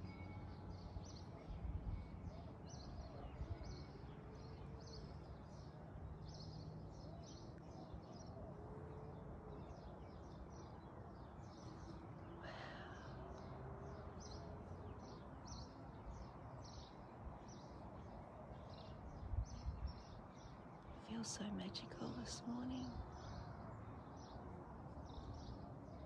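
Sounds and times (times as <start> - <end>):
small birds chirping: 9.1 - 26.0.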